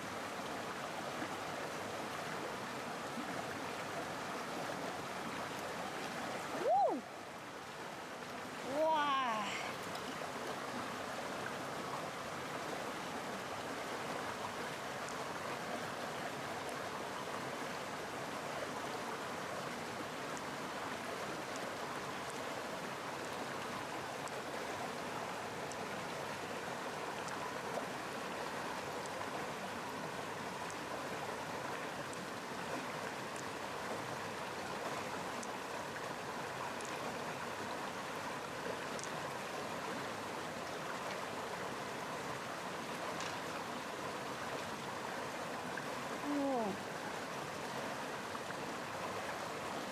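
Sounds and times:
stream water rushing: 0:00.0 - 0:49.9
faint light clicks: 0:38.9 - 0:39.2.

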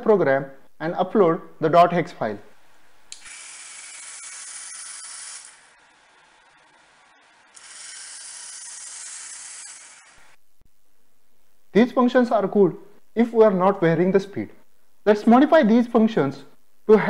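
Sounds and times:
robot wheel motors whirring: 0:03.1 - 0:10.4.

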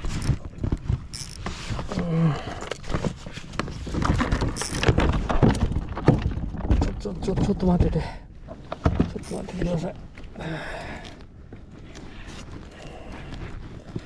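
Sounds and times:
fishing gear knocking and rattling: 0:00.0 - 0:10.0.

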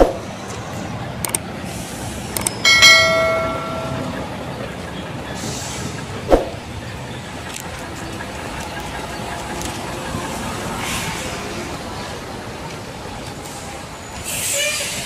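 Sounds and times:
vehicle noise: 0:00.0 - 0:15.0
sharp metallic clank: 0:02.4 - 0:04.3.

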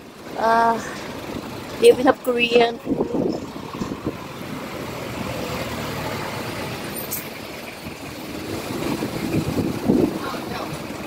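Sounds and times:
road traffic: 0:00.0 - 0:11.0.

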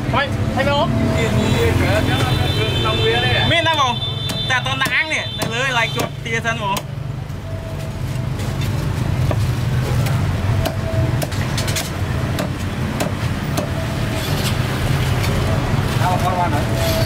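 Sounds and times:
knife chopping on wooden block: 0:03.6 - 0:06.2.

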